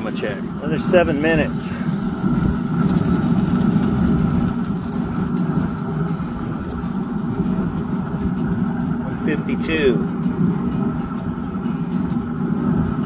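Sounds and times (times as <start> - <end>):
grill fan humming: 0.0 - 13.0.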